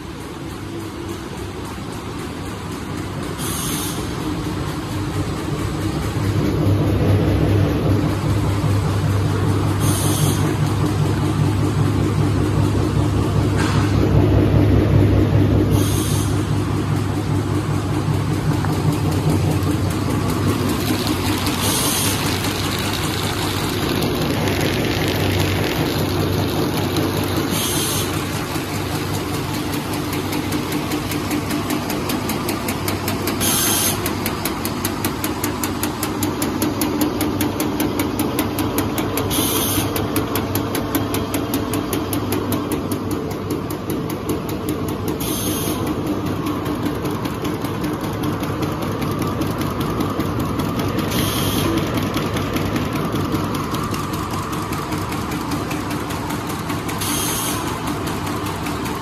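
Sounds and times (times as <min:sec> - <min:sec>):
machine mechanical clatter: 0:00.0 - 0:59.0
short hiss: 0:03.4 - 0:04.1, 0:09.8 - 0:10.4, 0:33.4 - 0:34.0, 0:45.2 - 0:45.8, 0:57.0 - 0:57.7.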